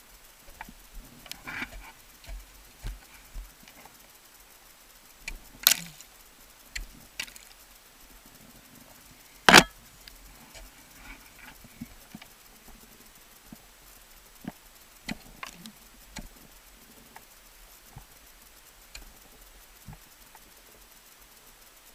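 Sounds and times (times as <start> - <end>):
ice axes striking ice: 5.2 - 6.1.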